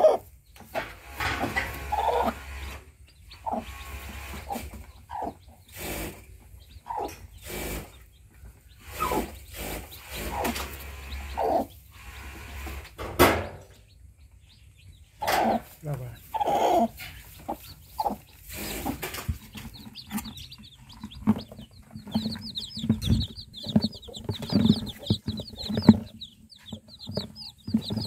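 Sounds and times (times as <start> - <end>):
hen clucking: 0.0 - 13.0, 13.9 - 28.0
sharp handling knocks: 18.9 - 28.0.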